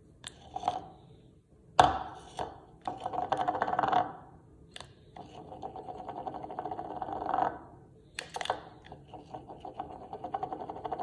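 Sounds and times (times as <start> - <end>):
cup spinning with rattling whirr: 0.2 - 1.0, 2.1 - 4.3, 5.0 - 11.0.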